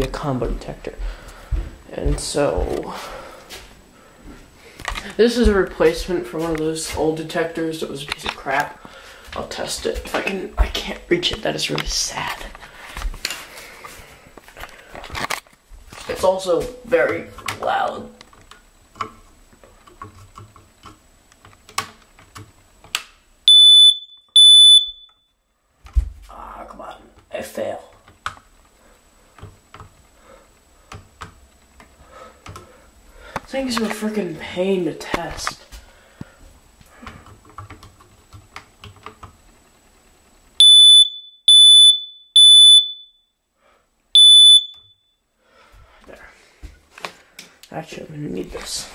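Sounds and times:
smoke alarm beeps: 23.5 - 25.4, 40.6 - 43.4, 44.2 - 45.2.

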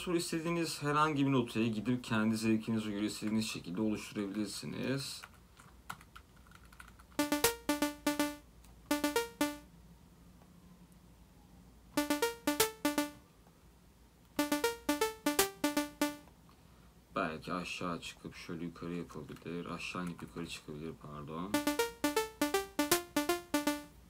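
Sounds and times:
plucky synthesizer notes: 7.2 - 9.7, 12.0 - 13.2, 14.4 - 16.3, 21.6 - 24.0.

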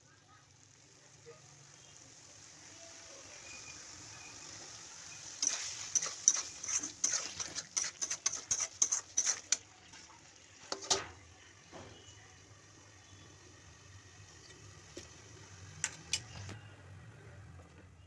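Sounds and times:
spatula scraping a steel pan: 5.4 - 10.1.

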